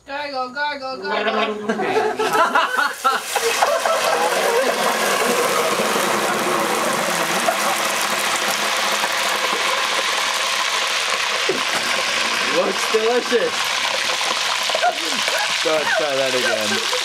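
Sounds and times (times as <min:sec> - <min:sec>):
oil sizzling and bubbling: 0:02.2 - 0:17.0
liquid spat into hot oil: 0:02.9 - 0:06.2.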